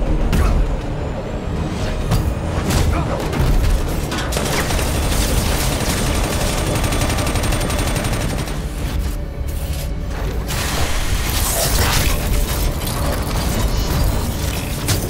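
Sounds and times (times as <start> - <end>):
rapid automatic gunfire: 4.3 - 9.0.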